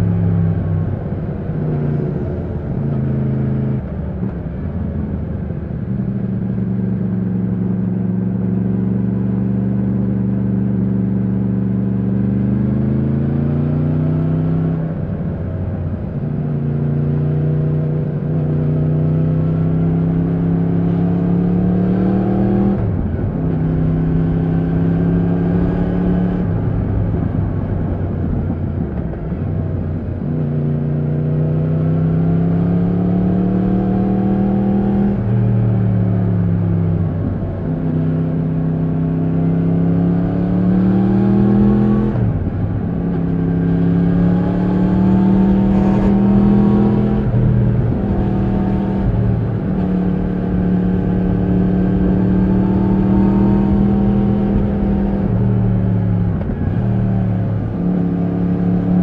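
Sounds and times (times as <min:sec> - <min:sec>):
motorcycle engine revving: 0:29.8 - 0:59.0.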